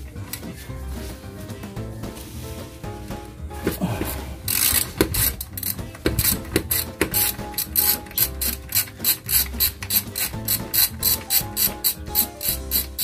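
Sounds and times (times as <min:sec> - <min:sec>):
socket ratchet clicking: 0:04.5 - 0:13.0.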